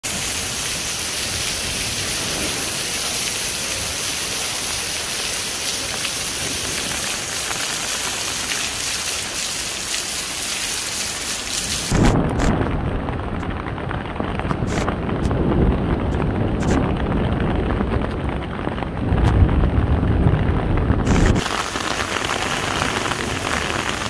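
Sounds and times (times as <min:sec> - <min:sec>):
water pouring off roof: 0:00.0 - 0:18.9, 0:21.1 - 0:24.0
heavy rain: 0:00.0 - 0:24.0
low rumble: 0:11.9 - 0:21.5.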